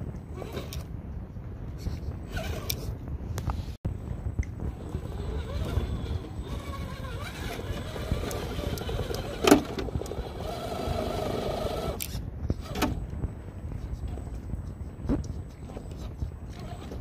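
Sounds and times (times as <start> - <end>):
toy car motor whining: 2.3 - 2.8, 4.7 - 12.1.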